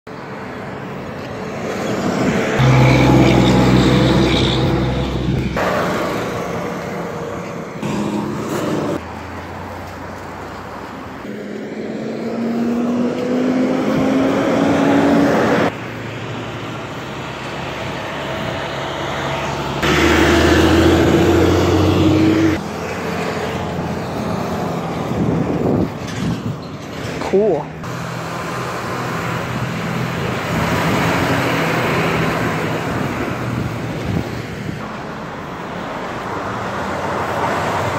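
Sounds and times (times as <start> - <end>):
trucks and cars passing: 0.1 - 37.9
engine accelerating: 1.9 - 9.0, 11.4 - 15.7, 18.3 - 24.7.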